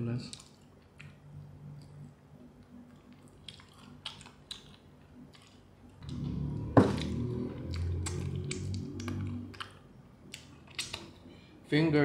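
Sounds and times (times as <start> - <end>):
chewing crispy chicken: 2.6 - 11.2.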